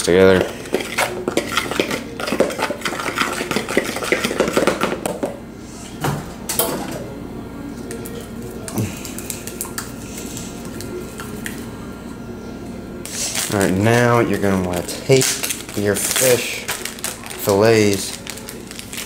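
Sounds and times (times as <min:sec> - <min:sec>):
fork stirring flour in plastic: 0:00.2 - 0:04.8.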